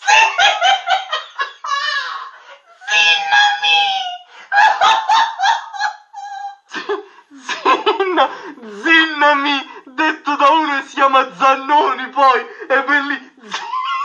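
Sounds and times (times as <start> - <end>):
high-pitched laughter: 0.0 - 8.3, 13.4 - 14.0.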